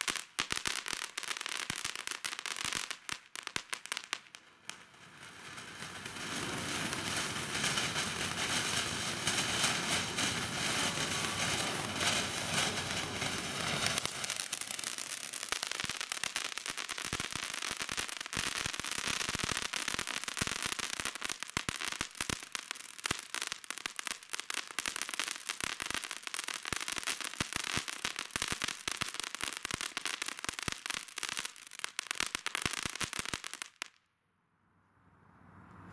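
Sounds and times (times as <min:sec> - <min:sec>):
firework fountain hissing: 0:00.0 - 0:22.2
firework crackling: 0:00.0 - 0:34.0.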